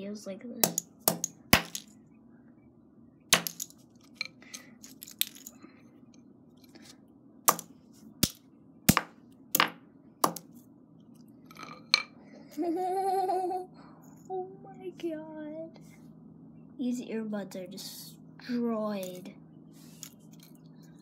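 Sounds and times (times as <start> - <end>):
hammer cracking on hard floor: 0.6 - 1.9, 3.4 - 3.7.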